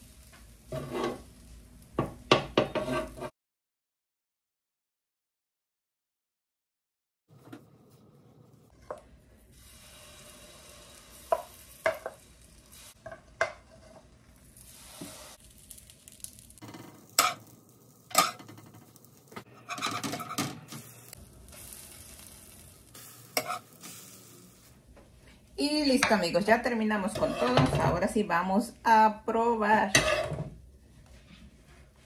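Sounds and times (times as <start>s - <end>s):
batter sizzling in a pan: 0.0s - 3.3s, 8.8s - 19.8s, 20.7s - 24.8s
utensil scraping pan: 0.7s - 1.2s, 2.6s - 3.3s, 18.1s - 20.9s, 23.0s - 24.2s, 27.0s - 28.1s, 29.7s - 30.5s.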